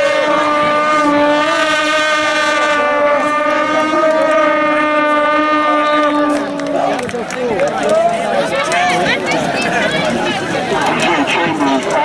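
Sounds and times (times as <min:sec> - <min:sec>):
horn blowing long note: 0:00.0 - 0:07.1
faint crowd voices: 0:00.0 - 0:12.0.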